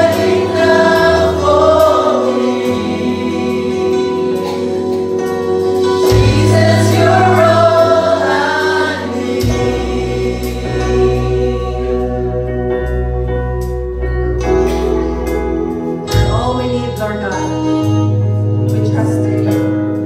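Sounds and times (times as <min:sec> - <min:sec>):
voices singing: 0:00.0 - 0:05.0, 0:06.1 - 0:12.7
slow worship music: 0:00.0 - 0:20.0.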